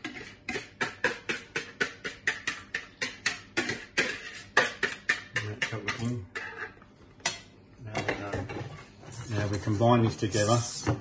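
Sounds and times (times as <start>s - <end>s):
knife scraping plastic bowl: 0.0s - 6.9s.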